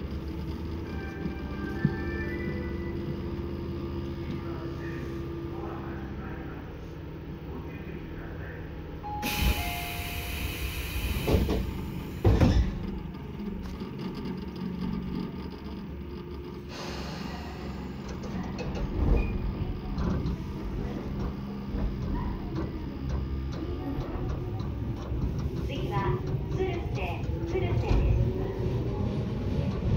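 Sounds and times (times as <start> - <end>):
train equipment hum: 0.0 - 29.9
sliding doors thudding shut: 11.2 - 13.1.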